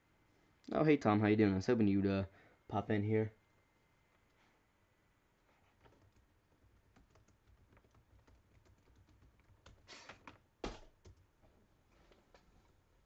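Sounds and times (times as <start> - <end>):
typing on computer keyboard: 5.8 - 9.9.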